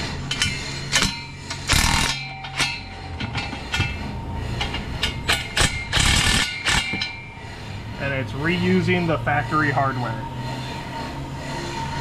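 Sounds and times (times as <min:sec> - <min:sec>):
steady low hum: 0:00.0 - 0:12.0
impact wrench hammering: 0:00.3 - 0:07.3.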